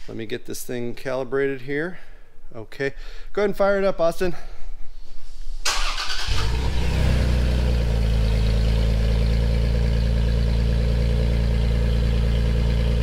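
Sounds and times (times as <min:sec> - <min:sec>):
truck engine idling: 0:06.8 - 0:13.0.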